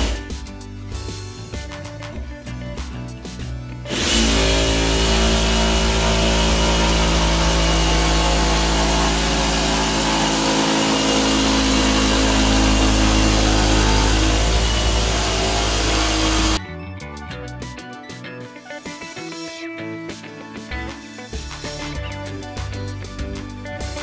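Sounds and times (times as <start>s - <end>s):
jigsaw cutting board: 3.9s - 16.6s.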